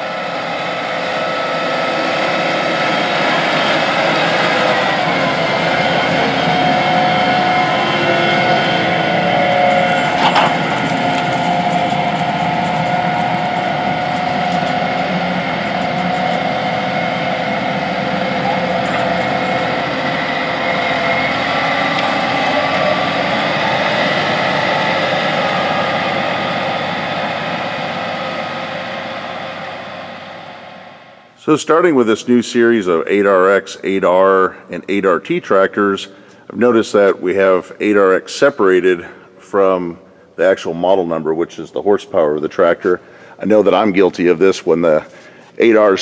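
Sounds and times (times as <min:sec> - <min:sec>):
steady hum: 0:00.0 - 0:31.6
tractor engine and tracks: 0:00.0 - 0:46.0.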